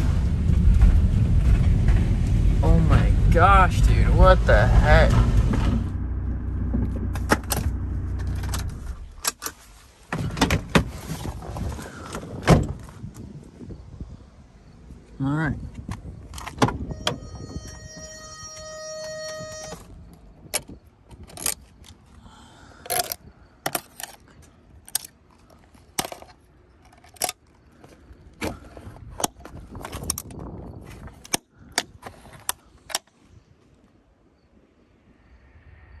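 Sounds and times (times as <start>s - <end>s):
steady electronic beep: 16.9s - 19.8s.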